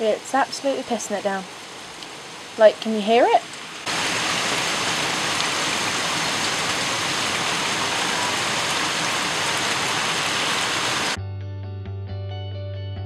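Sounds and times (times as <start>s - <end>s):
heavy rain on rooftops: 0.0s - 11.2s
music with steady bass note: 11.2s - 13.0s.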